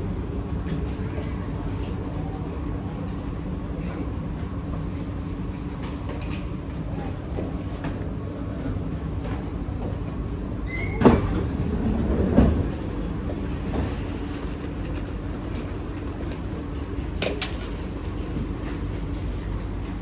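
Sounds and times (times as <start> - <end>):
train interior hum: 0.0 - 20.0.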